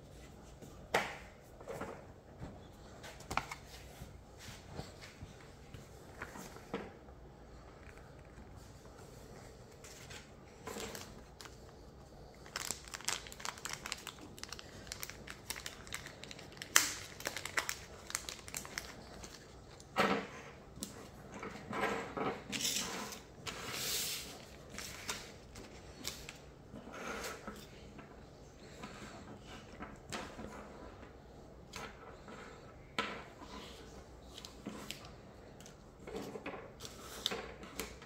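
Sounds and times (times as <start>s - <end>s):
plastic packaging crinkling: 10.6s - 19.9s.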